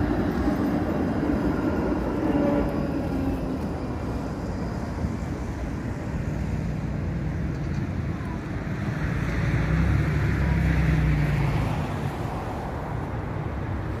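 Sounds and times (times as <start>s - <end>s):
electric tram humming: 0.0s - 14.0s.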